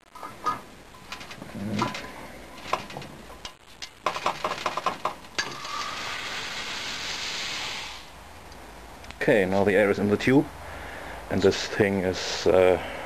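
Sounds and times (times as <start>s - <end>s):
air hissing into tube: 5.4s - 8.2s.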